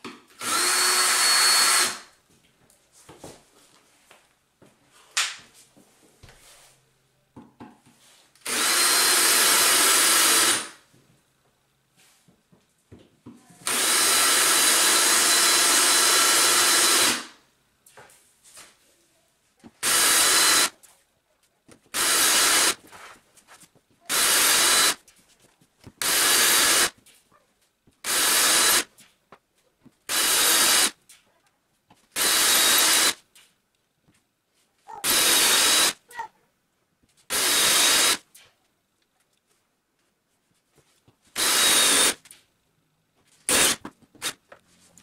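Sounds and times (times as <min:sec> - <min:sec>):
cordless drill boring into tile: 0:00.4 - 0:02.1, 0:08.4 - 0:10.8, 0:13.6 - 0:17.4, 0:19.8 - 0:20.7, 0:22.0 - 0:22.8, 0:24.1 - 0:25.0, 0:26.0 - 0:26.9, 0:28.1 - 0:28.9, 0:30.1 - 0:30.9, 0:32.2 - 0:33.2, 0:35.0 - 0:36.0, 0:37.3 - 0:38.2, 0:41.4 - 0:42.2, 0:43.5 - 0:43.8.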